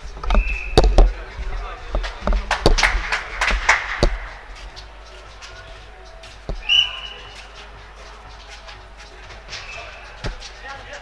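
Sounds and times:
voices: 0:00.0 - 0:11.0
sharp knocks: 0:00.3 - 0:01.2, 0:02.0 - 0:04.4
referee's whistle blast: 0:06.6 - 0:07.2.

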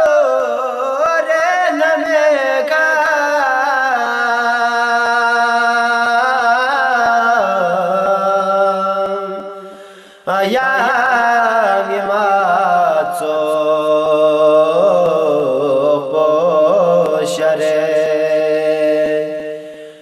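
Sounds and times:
man singing devotional song: 0:00.0 - 0:20.0.

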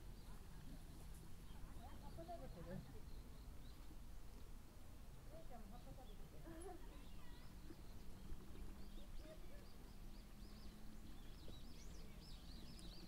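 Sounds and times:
low outdoor background: 0:00.0 - 0:13.0
small bird chirping: 0:05.7 - 0:13.0.

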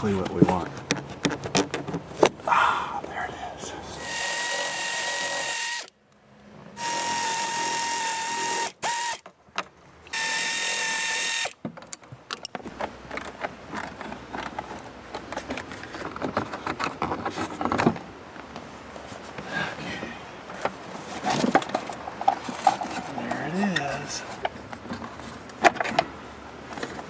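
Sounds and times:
electric drill whining: 0:04.0 - 0:05.9, 0:06.8 - 0:09.2, 0:10.1 - 0:11.6.

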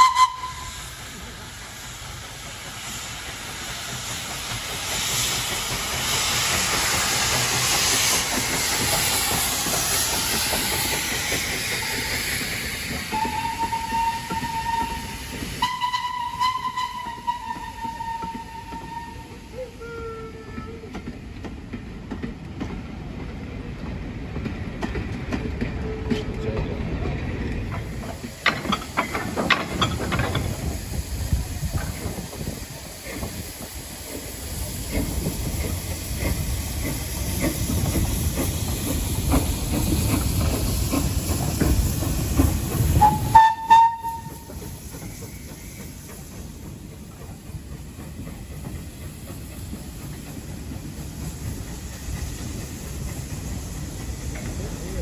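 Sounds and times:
loud steam whistle blast: 0:00.0 - 0:00.9, 0:13.1 - 0:20.8, 0:43.0 - 0:44.7
train wheels clanking over rails: 0:00.0 - 0:19.6, 0:20.5 - 0:55.0
train rumble: 0:00.0 - 0:55.0.

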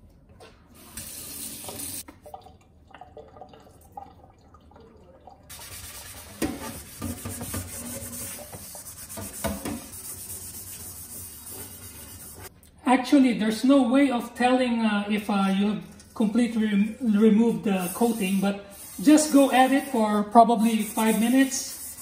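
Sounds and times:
tap water running into sink: 0:00.8 - 0:10.0
metal scrubber scrubbing wok: 0:05.5 - 0:12.5.

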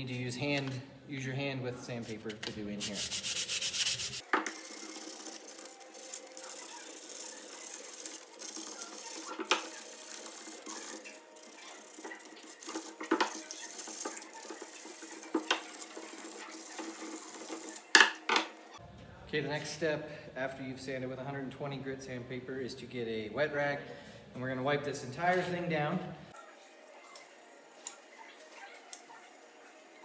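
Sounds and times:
sandpaper rubbing on wood: 0:02.8 - 0:04.2.

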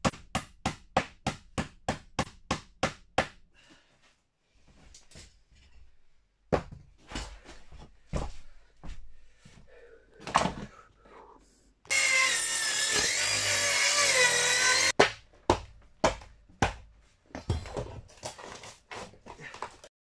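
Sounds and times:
circular saw cutting wood: 0:11.9 - 0:15.0.

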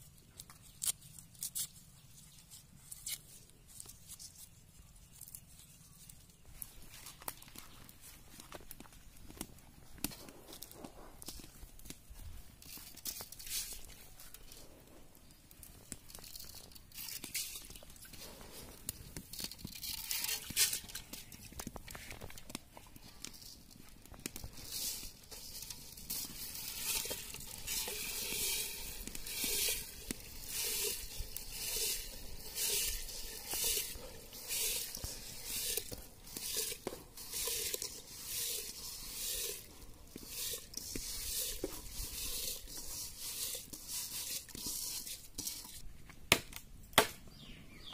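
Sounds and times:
rice grains rustling in bowl: 0:09.8 - 0:45.8.

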